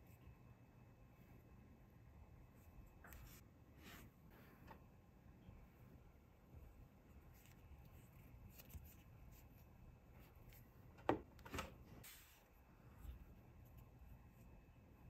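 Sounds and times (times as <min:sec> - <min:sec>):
soft rustle of packaging: 0:06.5 - 0:14.6.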